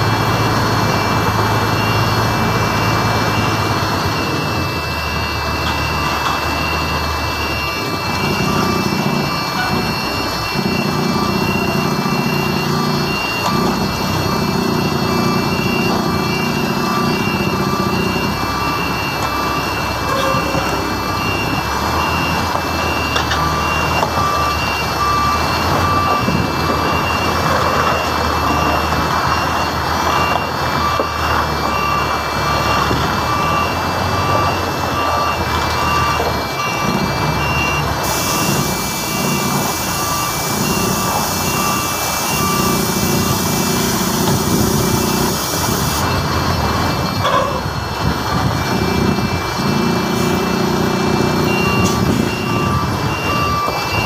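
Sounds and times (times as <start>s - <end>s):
reversing alarm beeping: 0.0s - 54.0s
truck engine running: 0.0s - 54.0s.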